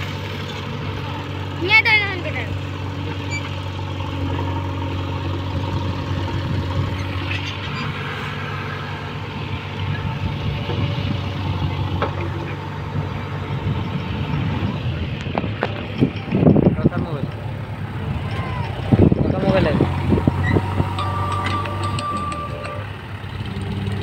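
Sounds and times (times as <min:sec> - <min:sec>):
diesel engine running: 0:00.0 - 0:24.0
metallic clank: 0:20.4 - 0:23.0.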